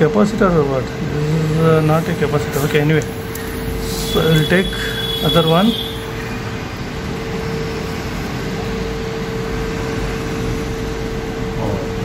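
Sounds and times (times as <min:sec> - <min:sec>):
constant mid-pitched tone: 0:00.0 - 0:12.0
mechanical hum and hiss: 0:00.0 - 0:12.0.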